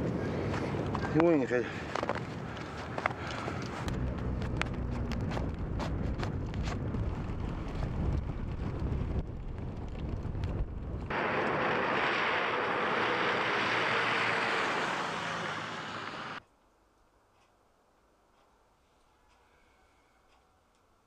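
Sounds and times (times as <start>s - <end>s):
wind buffeting microphone: 0.0s - 11.1s
car tyres hissing on slush: 11.1s - 16.4s.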